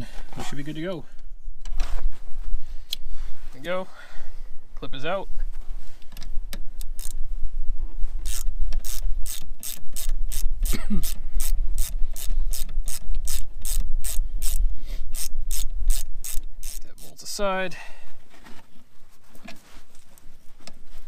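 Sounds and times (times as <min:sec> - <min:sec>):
ratchet wrench clicking: 0:06.8 - 0:07.2, 0:08.2 - 0:17.2.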